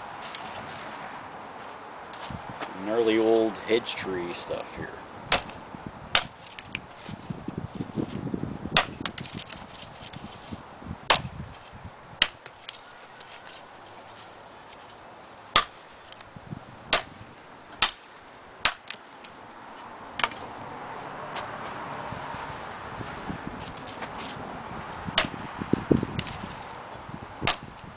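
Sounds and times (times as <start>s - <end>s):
branch rustling: 0.0s - 26.9s
hatchet chopping branch: 5.3s - 6.8s, 8.8s - 9.6s, 11.1s - 11.4s, 12.2s - 12.8s, 15.5s - 15.8s, 16.9s - 17.2s, 17.8s - 19.0s, 25.2s - 25.4s, 27.4s - 27.7s.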